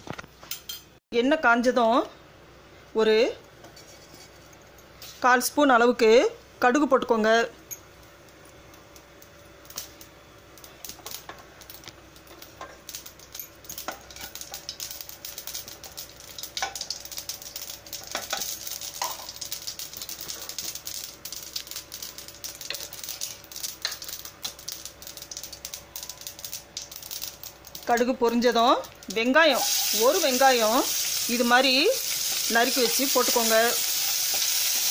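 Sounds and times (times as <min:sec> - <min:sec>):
spatula stirring oil: 0:03.6 - 0:04.6, 0:29.0 - 0:34.9
seeds popping in hot oil: 0:09.0 - 0:34.9
oil sizzling: 0:09.6 - 0:34.9.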